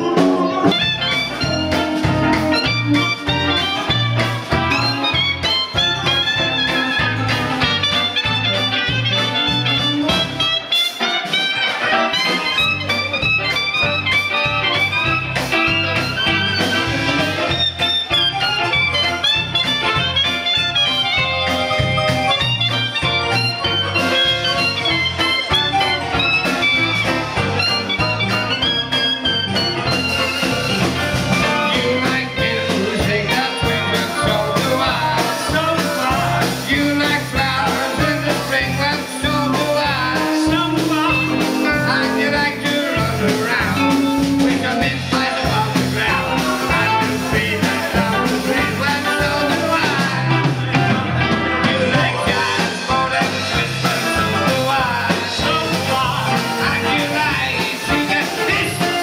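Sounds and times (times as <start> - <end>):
drum beat: 0.0 - 10.6, 12.4 - 59.0
live dance band playing: 0.0 - 59.0
man singing into microphone: 31.4 - 50.6, 51.6 - 59.0.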